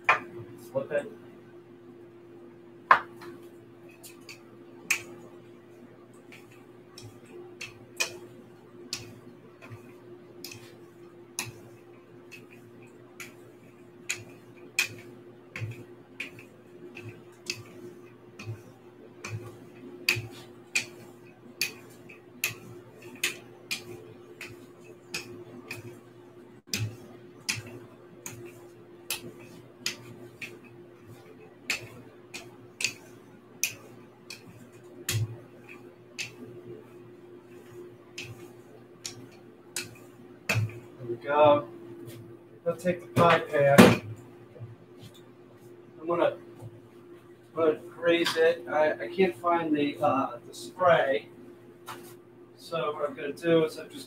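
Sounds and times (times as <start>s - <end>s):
steady low hum: 0.0s - 54.0s
rolling pin clicking on table: 6.3s - 10.7s, 12.3s - 26.0s, 26.7s - 36.5s, 37.5s - 40.9s.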